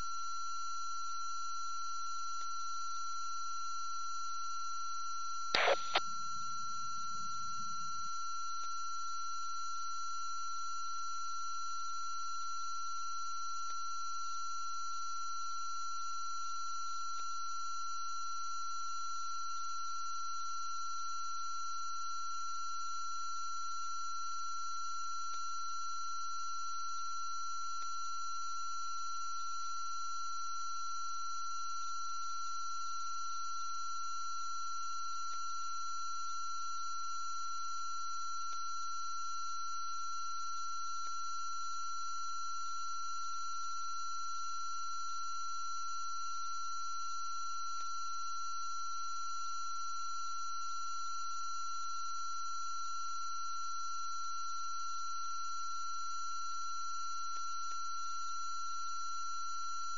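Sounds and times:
steady high-pitched tone: 5.6 - 6.0.

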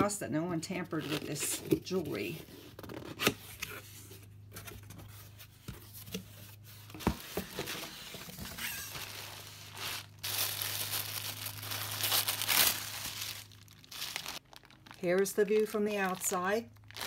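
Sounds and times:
low steady hum: 0.0 - 17.0
tissue paper crinkling: 7.5 - 17.0.

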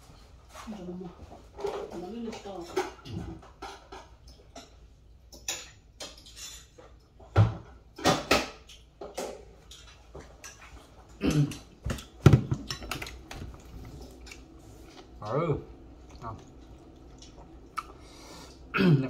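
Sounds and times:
dishes and cutlery clinking: 1.3 - 14.5.

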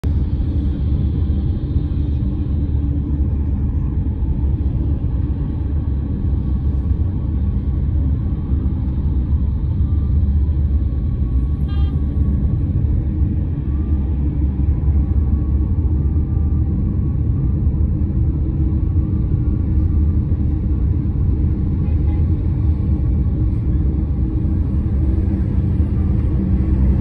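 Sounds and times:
car tyres and engine rumble: 0.0 - 27.0.

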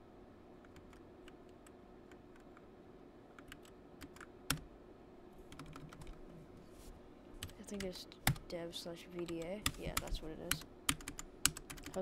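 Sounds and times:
computer keyboard keystrokes: 3.3 - 4.6, 5.5 - 6.2, 7.4 - 8.4, 9.2 - 12.0.

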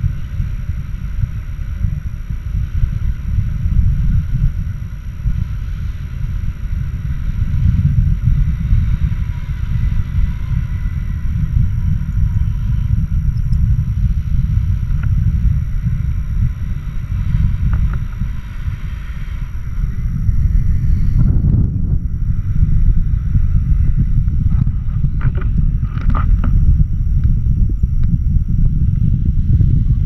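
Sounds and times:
wind rushing over microphone: 0.0 - 30.0.

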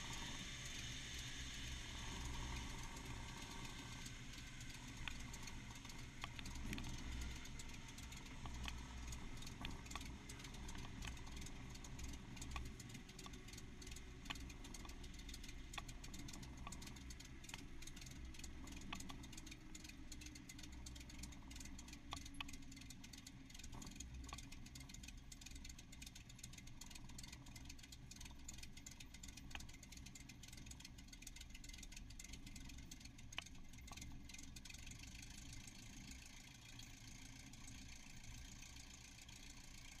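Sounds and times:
aircraft engine idling: 0.0 - 40.0.

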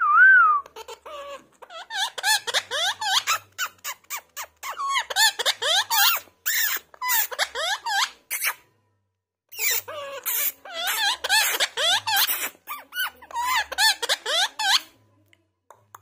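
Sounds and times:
parakeet talking: 0.7 - 8.6, 9.5 - 14.9.

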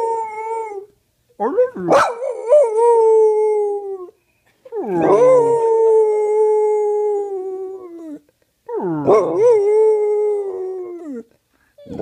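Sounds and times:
dog howling: 4.8 - 11.2.

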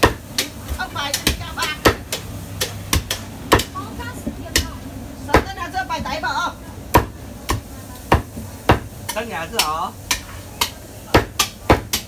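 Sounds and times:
cleaver chopping on wooden block: 0.0 - 3.8, 6.9 - 12.0.

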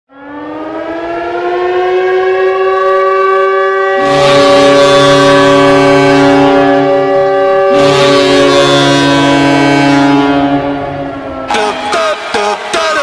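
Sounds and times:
lower horn tone: 0.2 - 13.0
goal horn blast: 4.0 - 13.0.

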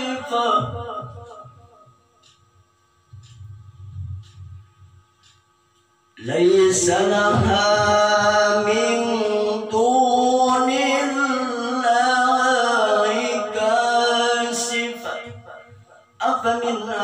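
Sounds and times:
man reciting melodically: 0.0 - 2.4, 6.2 - 17.0.

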